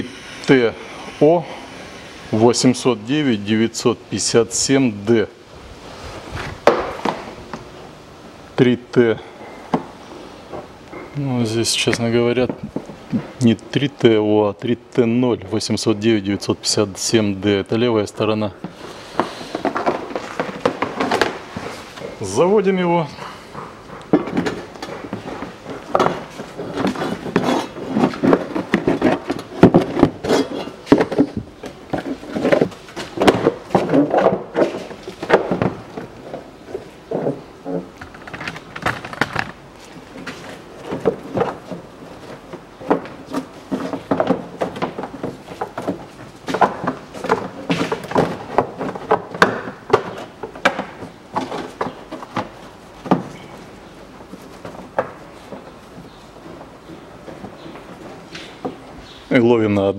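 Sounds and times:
plastic scraping and knocking: 0:18.5 - 0:22.2, 0:23.2 - 0:59.2.

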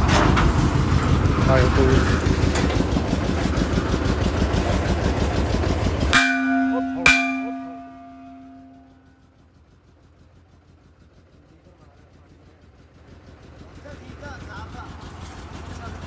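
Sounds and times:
drilling rig engine running: 0:00.0 - 0:11.3
hammer blows on ringing steel pipe: 0:06.1 - 0:09.2.

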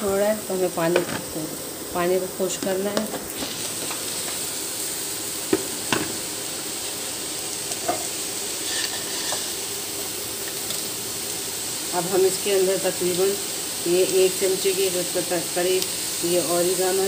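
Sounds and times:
vegetables sizzling in a frying pan: 0:00.0 - 0:17.0
spatula knocking on pan: 0:05.5 - 0:06.2.

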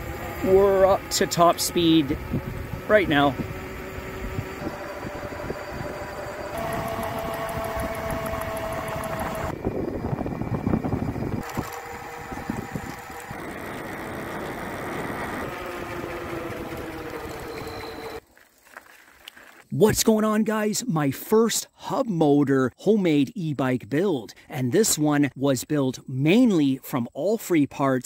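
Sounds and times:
electric motor whining: 0:00.0 - 0:18.2
tyres on asphalt: 0:00.0 - 0:20.0
wind noise: 0:01.3 - 0:18.1.

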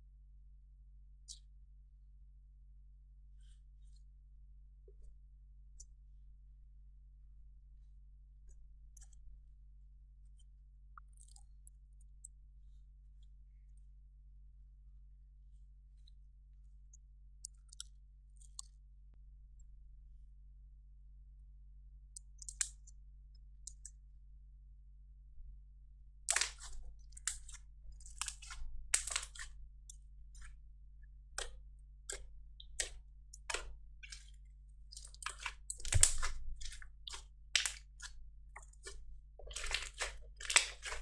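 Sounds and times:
slime crackling and squelching: 0:26.3 - 0:30.7, 0:31.3 - 0:41.0.

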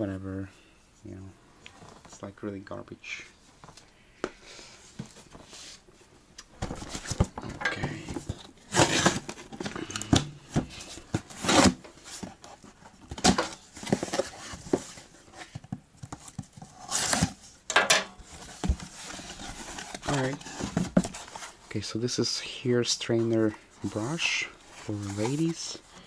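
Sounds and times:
cardboard box rustling and scraping: 0:06.6 - 0:09.8, 0:10.4 - 0:17.4, 0:18.2 - 0:21.6, 0:23.1 - 0:25.9.

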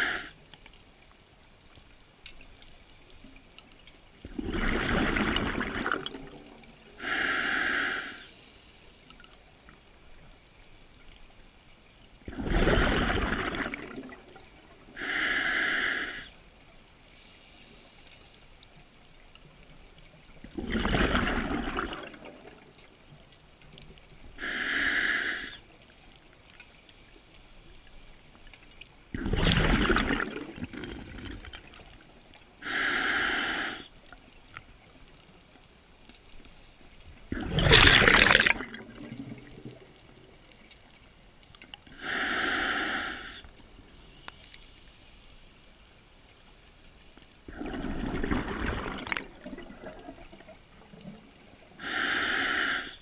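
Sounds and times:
regulator hissing inhale: 0:00.0 - 0:00.5, 0:07.0 - 0:09.3, 0:14.9 - 0:16.4, 0:17.1 - 0:18.9, 0:24.4 - 0:25.7, 0:32.5 - 0:34.0, 0:41.9 - 0:47.2, 0:51.8 - 0:53.0
exhaled bubbles bubbling: 0:04.2 - 0:06.8, 0:12.3 - 0:15.0, 0:20.4 - 0:22.8, 0:29.1 - 0:32.0, 0:37.3 - 0:40.2, 0:47.5 - 0:52.7.

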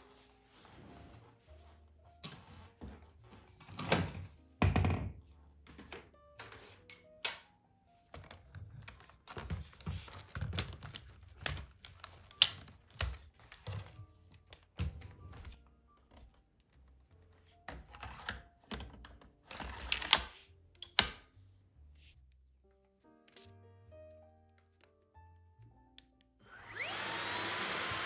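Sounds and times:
soft background music: 0:00.0 - 0:28.0
plastic vacuum parts clicking together: 0:08.1 - 0:15.5.

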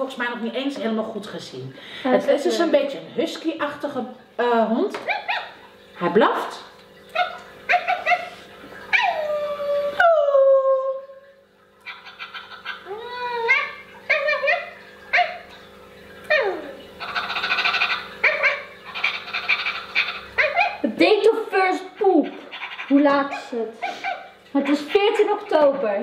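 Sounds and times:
toy dog yips and whimpers: 0:07.2 - 0:09.7, 0:18.2 - 0:20.8.

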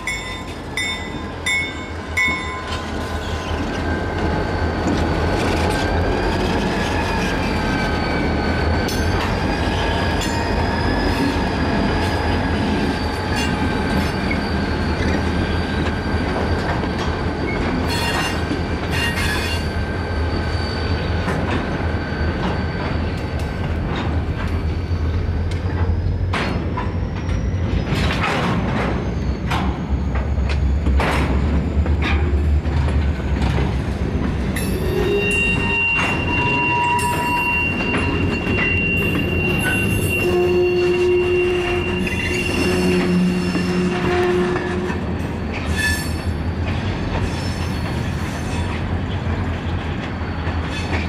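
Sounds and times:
train wheels squealing: 0:00.0 - 0:51.0
wheels clanking over rail joints: 0:21.2 - 0:51.0.

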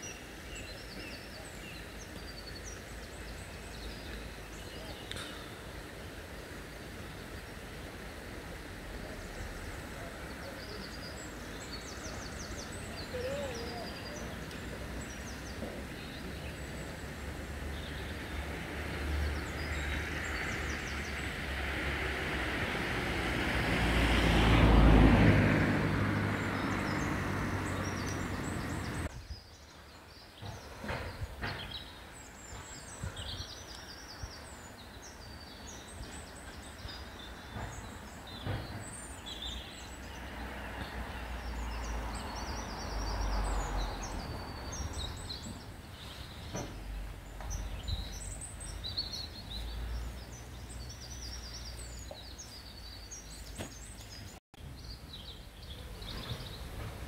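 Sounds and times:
birds singing: 0:00.0 - 0:22.5, 0:24.4 - 0:57.0
steam hissing over low rumble: 0:00.3 - 0:13.2.

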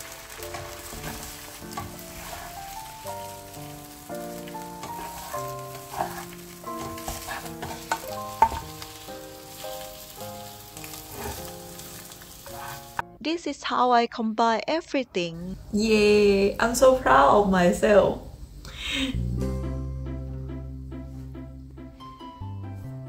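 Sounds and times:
egg sizzling in frying pan: 0:00.0 - 0:13.0
background music: 0:00.0 - 0:14.6, 0:18.4 - 0:23.0
spatula scraping pan: 0:00.4 - 0:03.6, 0:04.3 - 0:10.1, 0:10.8 - 0:13.0.

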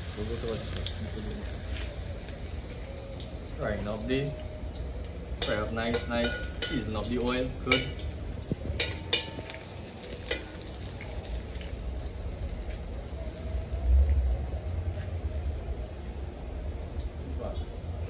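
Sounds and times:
vegetables frying in oil: 0:00.0 - 0:18.0
metal spoon clinking on pot: 0:05.4 - 0:08.1, 0:08.8 - 0:09.6.

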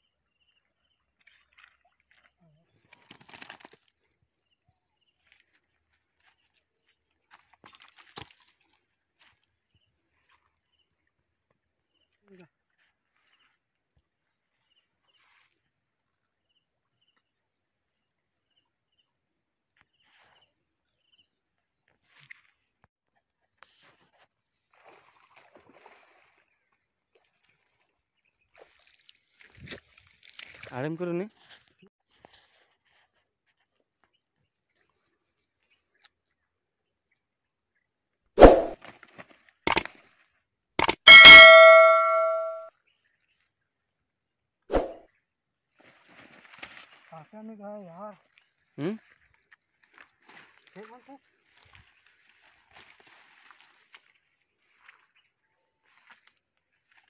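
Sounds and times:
sharp click: 0:39.7 - 0:39.9, 0:40.8 - 0:42.7.

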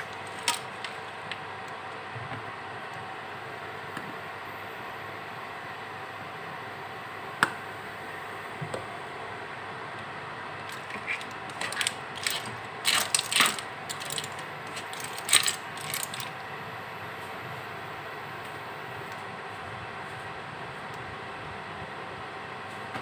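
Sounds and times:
clam shells clinking: 0:11.0 - 0:16.3.

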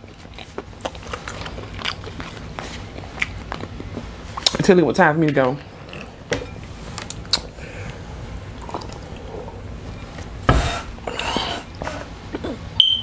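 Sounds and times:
swallowing water: 0:07.7 - 0:09.7.

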